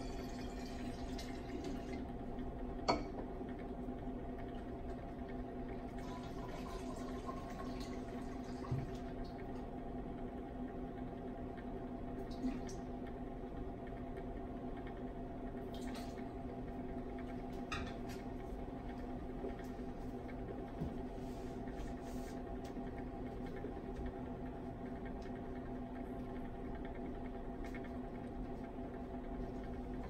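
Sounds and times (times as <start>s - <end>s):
hot plates humming: 0.0s - 9.7s.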